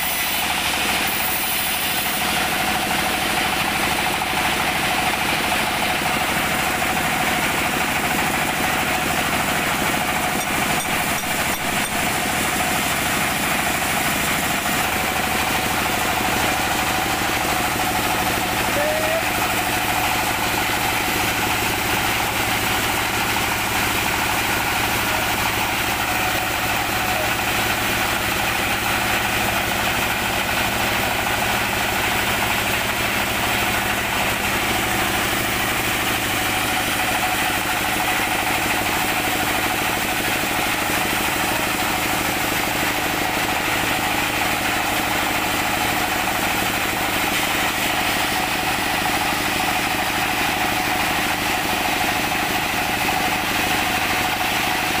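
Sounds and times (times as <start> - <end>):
sawmill machine drone: 0.0 - 55.0.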